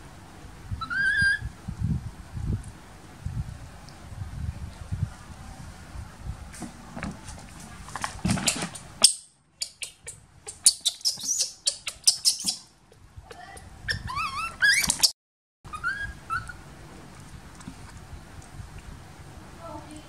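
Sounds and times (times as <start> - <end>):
baby monkey chirping squeaks: 0.8 - 1.5, 8.5 - 15.1, 15.7 - 16.6
baby monkey squealing: 0.8 - 1.5, 8.5 - 12.7, 13.3 - 15.1, 15.7 - 16.6.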